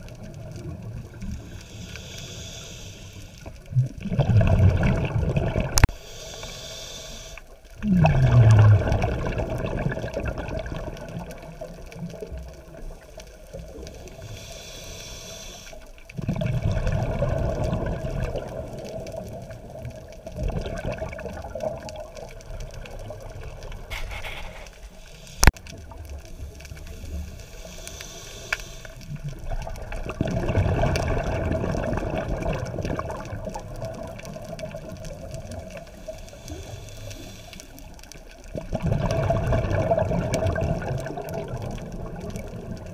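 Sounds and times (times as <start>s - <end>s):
water noise: 0.0s - 42.9s
regulator bubbling underwater: 3.7s - 6.0s, 7.8s - 14.3s, 16.1s - 24.0s, 29.0s - 36.4s, 38.3s - 42.9s.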